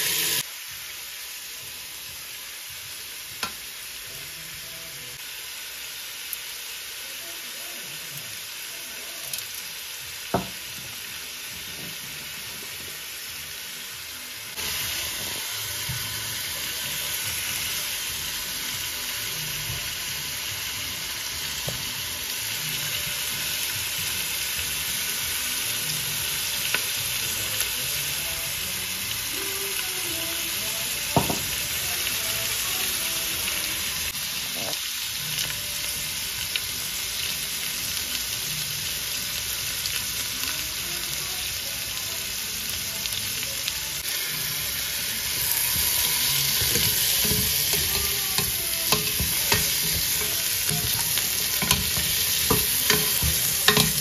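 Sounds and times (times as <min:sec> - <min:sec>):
meat sizzling in a pot: 0:00.0 - 0:54.0.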